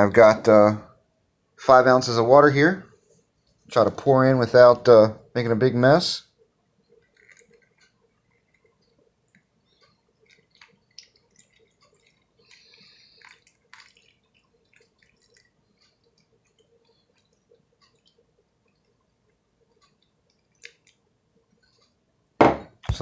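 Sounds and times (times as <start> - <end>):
water trickling: 6.8 - 22.0
water dripping and splashing: 6.9 - 21.8.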